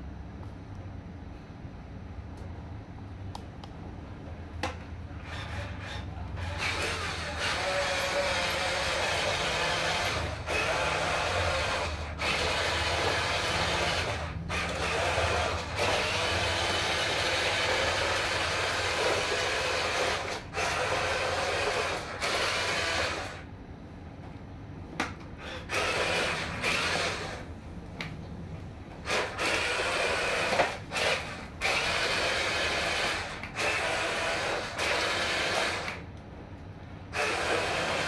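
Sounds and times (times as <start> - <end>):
toy truck electric motor whirring: 5.2 - 23.5, 25.4 - 27.5, 29.0 - 36.0, 37.1 - 38.0.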